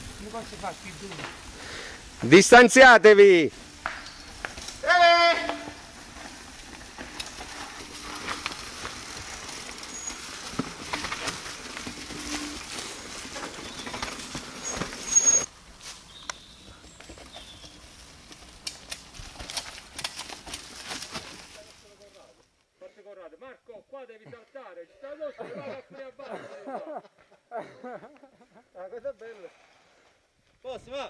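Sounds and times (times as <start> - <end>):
bike tyres crunching over stones: 0.0 - 22.6
bike clicks and rattles: 3.6 - 15.5, 16.2 - 22.1
high squeal: 9.8 - 11.0, 14.6 - 15.5.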